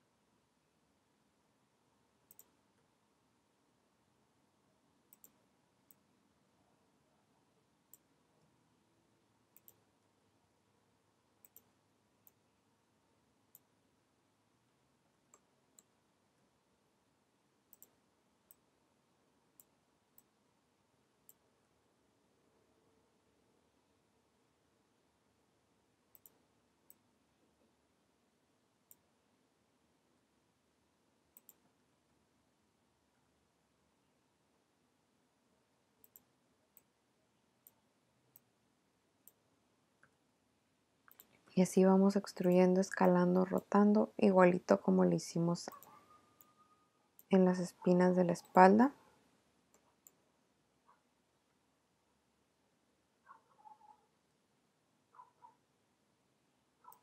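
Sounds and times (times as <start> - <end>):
computer mouse and key clicks: 2.2 - 2.6, 5.1 - 6.1, 9.5 - 9.9, 11.4 - 12.4, 17.7 - 18.7, 26.1 - 27.0, 31.3 - 31.7, 36.0 - 36.9, 41.0 - 41.6, 42.2 - 44.0, 45.7 - 46.6
mouse and keyboard clicks: 5.1 - 6.0, 9.6 - 9.8, 45.7 - 46.5.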